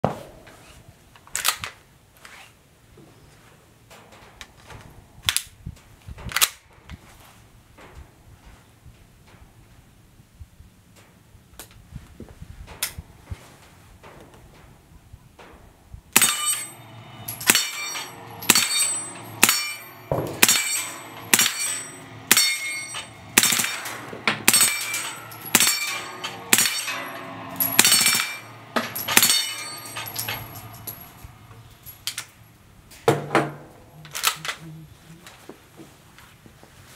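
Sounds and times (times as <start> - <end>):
soft metallic clatters: 15.4 - 34.6
steel plate clanging: 16.1 - 34.6.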